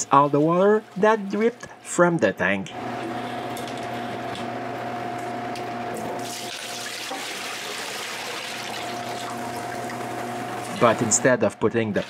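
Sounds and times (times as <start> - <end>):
water splashing into a sink: 6.2 - 10.1
steady hum: 8.6 - 12.0.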